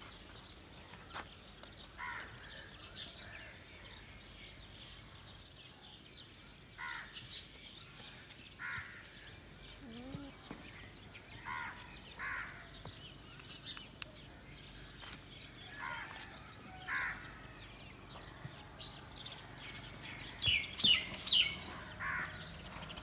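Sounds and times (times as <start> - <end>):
birds cawing: 2.0 - 2.5, 6.8 - 7.2, 8.6 - 9.0, 11.4 - 12.7, 15.7 - 17.5, 21.3 - 22.6.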